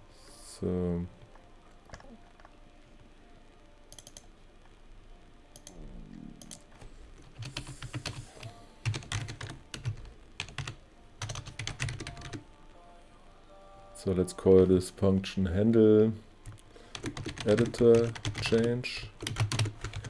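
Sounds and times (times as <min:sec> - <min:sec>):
typing on computer keyboard: 0:03.9 - 0:04.3, 0:07.2 - 0:12.4, 0:16.5 - 0:20.0.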